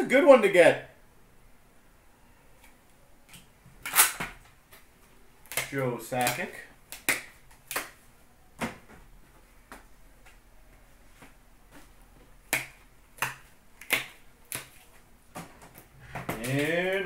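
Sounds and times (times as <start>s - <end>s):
trading cards clicking and tapping: 5.5s - 8.0s, 12.5s - 14.8s, 15.4s - 17.0s.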